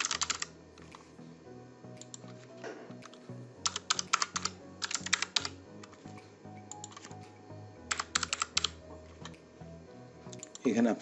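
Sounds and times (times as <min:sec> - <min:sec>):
computer keyboard typing: 0:00.0 - 0:01.0, 0:02.0 - 0:02.4, 0:03.0 - 0:07.3, 0:07.9 - 0:09.4, 0:10.3 - 0:10.8
background music: 0:00.0 - 0:11.0.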